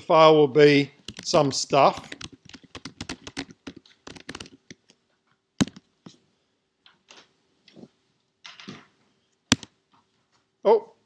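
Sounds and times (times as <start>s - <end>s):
typing on computer keyboard: 1.0s - 4.8s.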